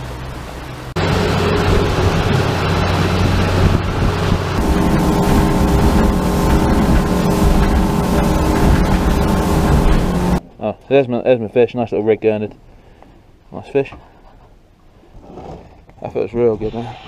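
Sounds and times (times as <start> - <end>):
outboard motor running: 0.0 - 10.4
rushing wake water: 0.0 - 10.4.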